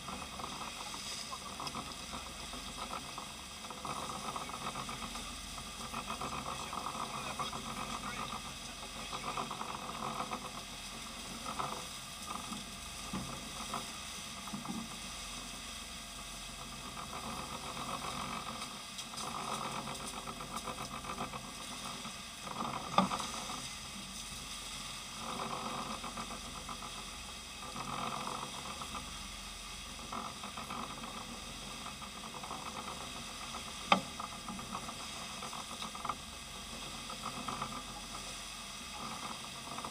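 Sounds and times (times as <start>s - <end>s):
boat engine drone: 0.0s - 39.9s.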